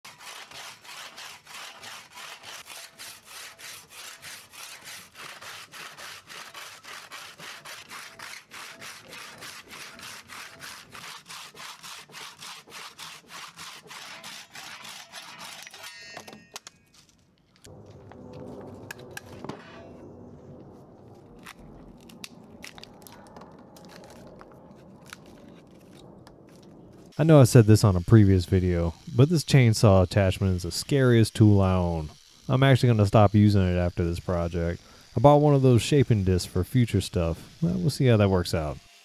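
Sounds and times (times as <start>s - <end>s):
hand saw cutting a log: 0.0s - 16.0s, 27.3s - 39.0s.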